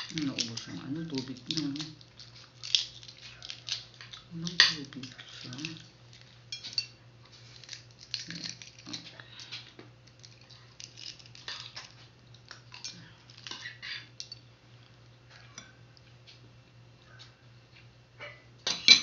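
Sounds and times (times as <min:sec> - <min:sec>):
eggshell cracking: 0:00.0 - 0:05.8, 0:07.5 - 0:09.1, 0:10.0 - 0:14.3
low steady hum: 0:00.0 - 0:19.0.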